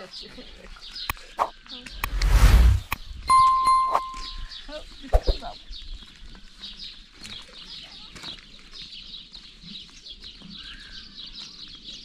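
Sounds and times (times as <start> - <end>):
small birds chirping: 0.0 - 2.2, 2.8 - 12.0.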